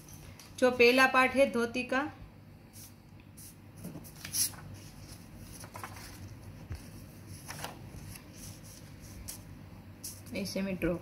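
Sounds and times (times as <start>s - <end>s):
paper rustling over fabric: 3.8s - 10.4s.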